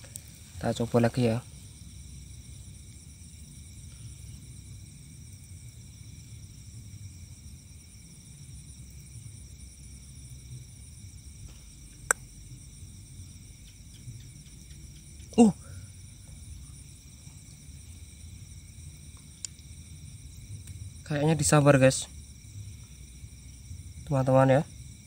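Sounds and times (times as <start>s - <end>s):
night insects trilling: 0.0s - 25.0s.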